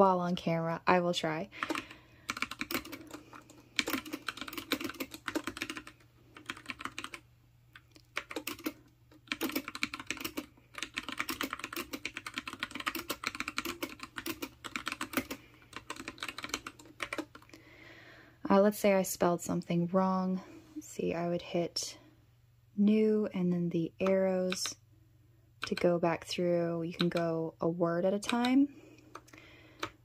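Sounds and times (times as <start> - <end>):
mechanical keyboard typing: 1.6 - 7.2, 7.8 - 17.5, 24.0 - 24.8, 25.6 - 26.0, 26.9 - 27.4, 28.2 - 30.0.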